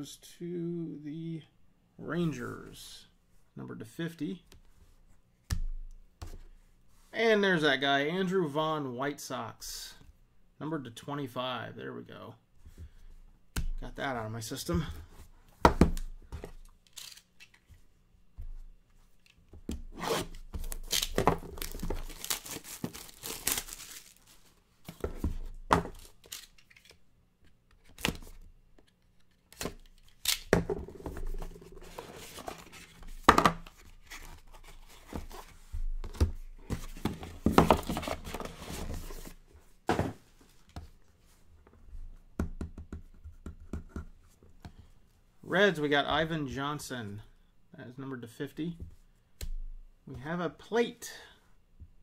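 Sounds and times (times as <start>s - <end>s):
packaging tearing and crinkling: 20.7s - 24.3s.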